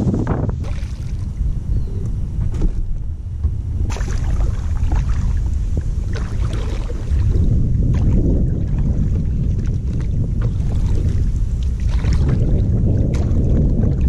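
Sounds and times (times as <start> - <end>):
wind rumble on microphone: 0.0 - 14.0
paddle strokes splashing water: 3.9 - 14.0.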